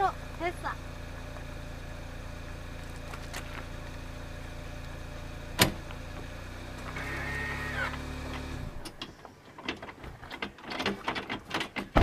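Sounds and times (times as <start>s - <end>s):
car engine idling: 0.0s - 11.1s
hitch coupler metal clunk: 5.6s - 5.9s, 8.8s - 12.0s.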